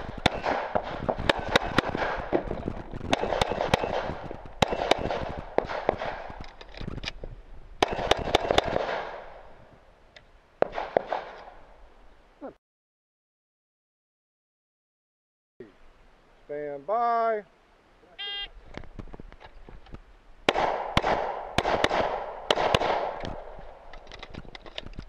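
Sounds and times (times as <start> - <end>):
pistol gunshots: 0.0 - 6.4, 7.8 - 9.5, 10.6 - 11.6, 20.5 - 24.0.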